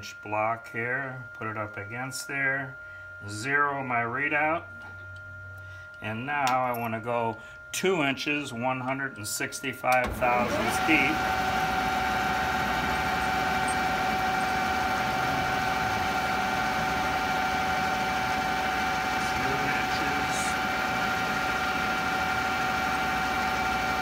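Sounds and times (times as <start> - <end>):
metal lathe whining: 10.0 - 24.0.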